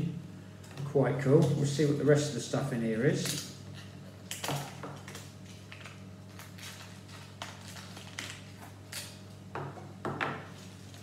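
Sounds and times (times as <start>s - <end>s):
low steady hum: 0.0s - 11.0s
cardboard and foil rustling: 5.7s - 8.8s.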